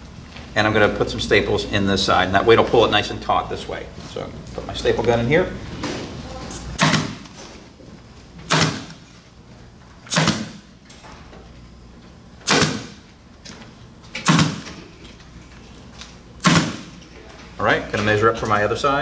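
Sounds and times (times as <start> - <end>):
pneumatic staple gun firing: 6.8 - 7.4, 8.5 - 9.0, 10.1 - 10.7, 12.4 - 13.0, 14.2 - 14.8, 16.4 - 16.9.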